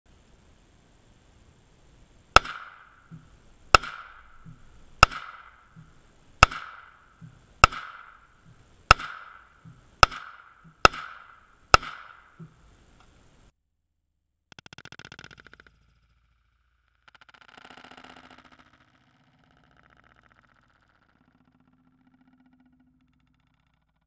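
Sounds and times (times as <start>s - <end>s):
rifle shots: 2.3s - 12.4s.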